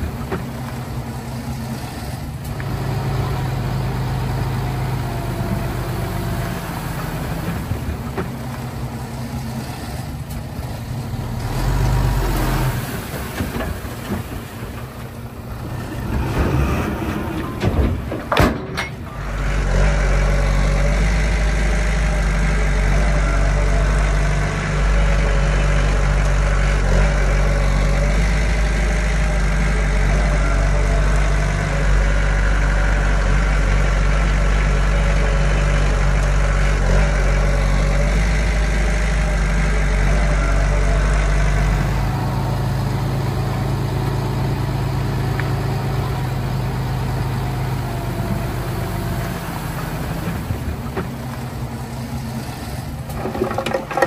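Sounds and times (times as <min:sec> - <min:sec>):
diesel engine of heavy machinery: 0:00.0 - 0:54.0
engine knocks: 0:02.2 - 0:12.0, 0:12.7 - 0:21.2, 0:45.2 - 0:54.0.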